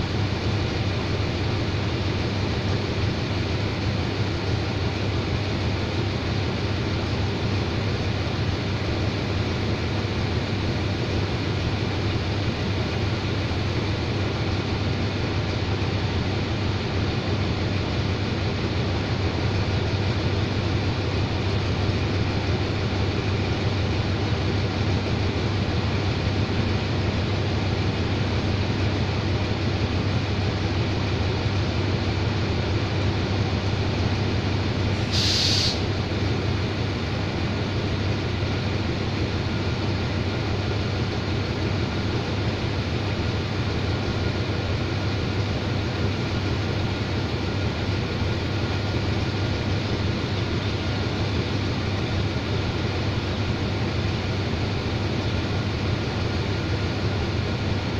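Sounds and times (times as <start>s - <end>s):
train locomotive idling: 0.0s - 57.9s
short hiss: 34.9s - 36.0s.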